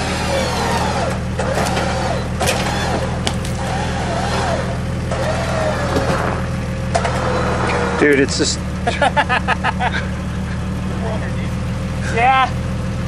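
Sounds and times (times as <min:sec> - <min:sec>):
electric winch motor whine: 0:00.0 - 0:08.2
car engine idling: 0:00.0 - 0:13.0.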